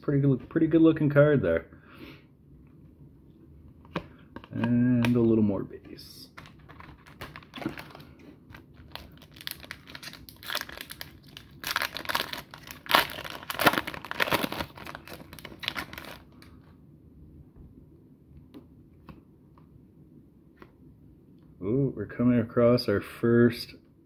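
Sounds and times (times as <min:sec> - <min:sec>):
foil wrapper crinkling and tearing: 0:06.5 - 0:16.4.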